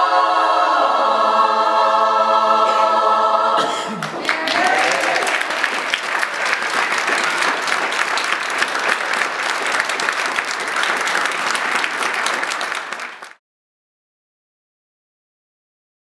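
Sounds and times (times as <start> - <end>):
audience applauding: 4.0 - 13.4.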